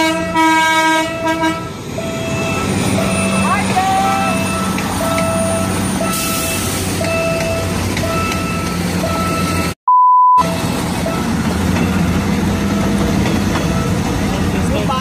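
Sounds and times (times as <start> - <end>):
passing train rumble: 0.0 - 9.8, 10.4 - 15.0
two-tone crossing alarm beeping: 0.8 - 14.2
loud single pure beep: 9.3 - 10.5.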